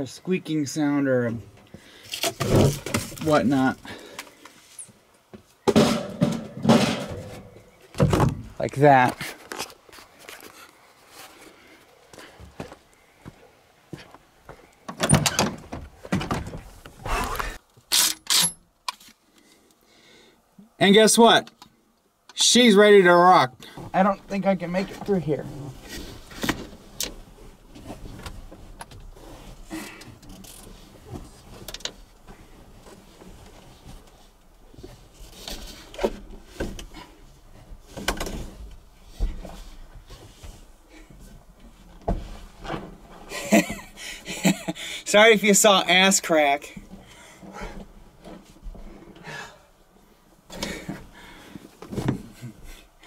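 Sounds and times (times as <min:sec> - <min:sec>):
man breathing: 0:01.7 - 0:02.2, 0:03.8 - 0:04.8, 0:17.0 - 0:17.6, 0:19.2 - 0:20.5, 0:43.9 - 0:45.1, 0:46.9 - 0:48.0, 0:48.8 - 0:49.8, 0:50.5 - 0:53.0
clothes rustling and scuffing: 0:08.4 - 0:14.7, 0:23.8 - 0:29.8, 0:30.6 - 0:43.7.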